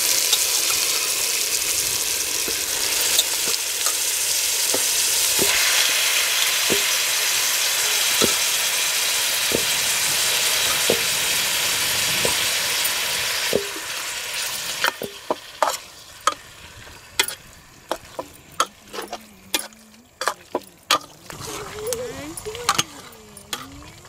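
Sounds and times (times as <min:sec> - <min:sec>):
meat sizzling in a pot: 0:00.0 - 0:24.0
metal spoon scraping a pot: 0:14.8 - 0:16.4, 0:17.2 - 0:24.0.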